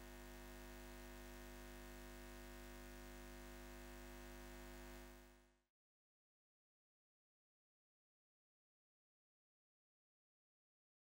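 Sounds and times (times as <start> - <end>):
faint electrical hum: 0.0 - 5.6.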